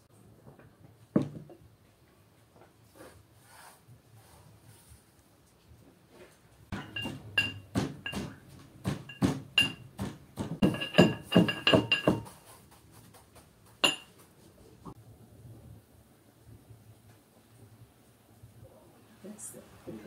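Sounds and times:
pestle clinking in mortar: 6.7s - 12.4s, 13.8s - 14.2s.

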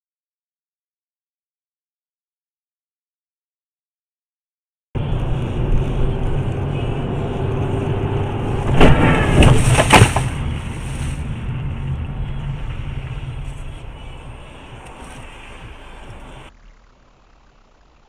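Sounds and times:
car engine rumble: 5.0s - 18.0s
tyres on road: 5.0s - 18.0s
loud collision bang: 8.6s - 10.5s
scraping and knocking: 8.7s - 11.2s.

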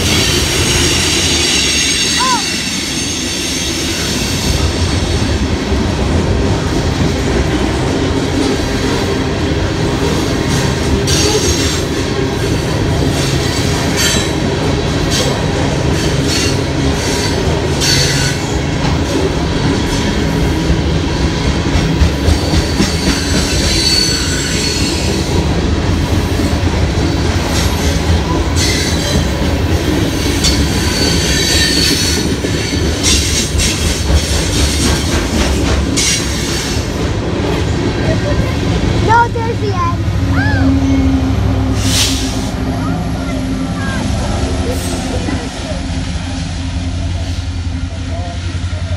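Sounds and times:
freight cars rumbling on rails: 0.0s - 48.9s
wheel squeals: 22.4s - 25.2s, 30.3s - 33.8s.

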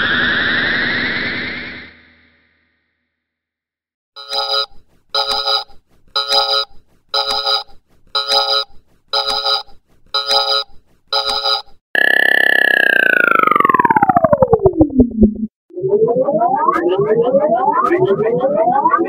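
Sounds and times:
electronic alarm beeping: 4.2s - 13.6s.

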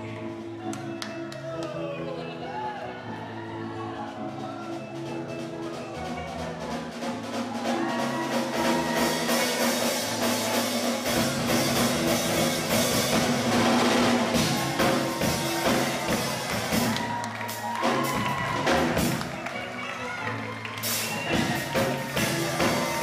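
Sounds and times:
bass: 0.0s - 23.0s
drum kit beat: 5.5s - 23.0s.

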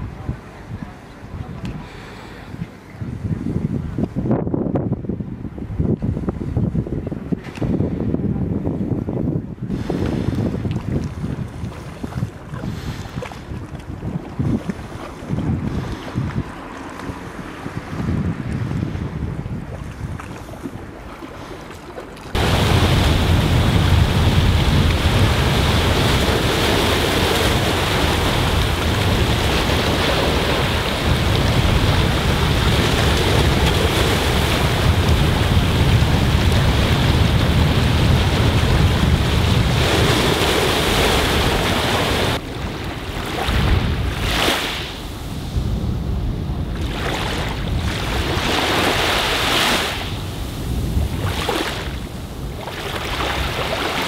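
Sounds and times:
wind buffeting microphone: 0.0s - 21.1s, 22.3s - 54.0s
small waves lapping on sand: 9.7s - 45.8s, 46.6s - 54.0s
waves breaking over rocks: 19.7s - 54.0s.

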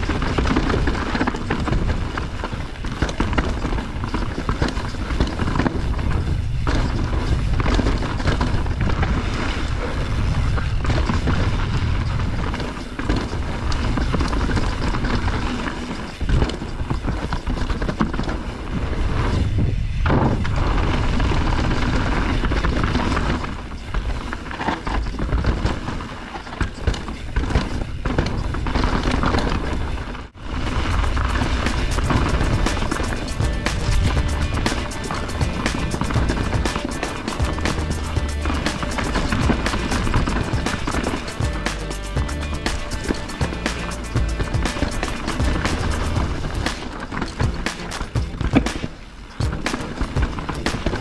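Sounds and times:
wind buffeting microphone: 0.0s - 15.5s, 18.5s - 24.2s
bike rattling and knocking: 0.0s - 51.0s
tyres rolling on dirt: 0.0s - 51.0s.

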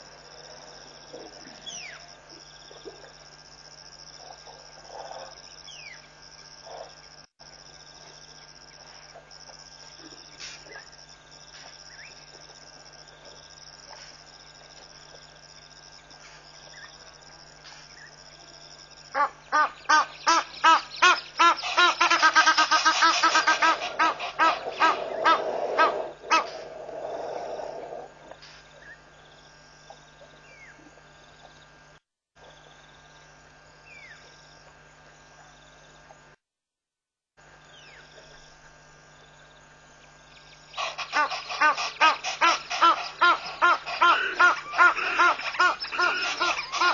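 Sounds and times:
insects: 0.0s - 36.4s, 37.4s - 46.9s
loud harsh bird call: 19.2s - 27.7s, 40.7s - 46.9s.

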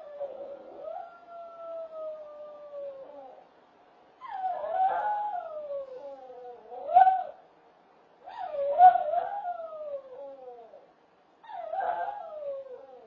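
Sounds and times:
dog howling: 11.5s - 13.0s.

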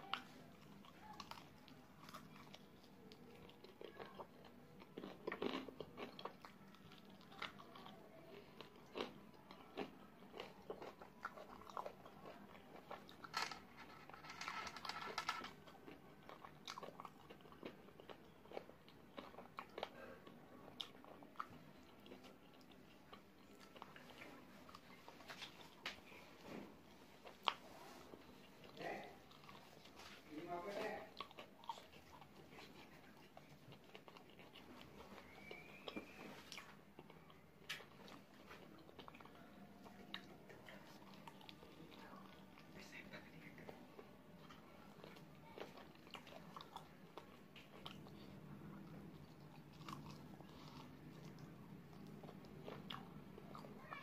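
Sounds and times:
crunching and chewing chicken wings: 0.0s - 54.0s.

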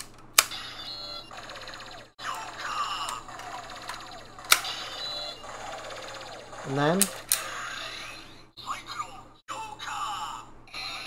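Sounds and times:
toy electronic sound effects: 0.5s - 8.8s
sharp plastic clicks: 3.0s - 4.7s.

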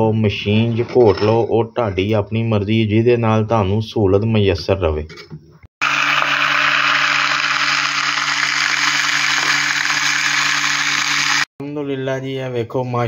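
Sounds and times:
immersion blender whirring: 5.8s - 11.5s.

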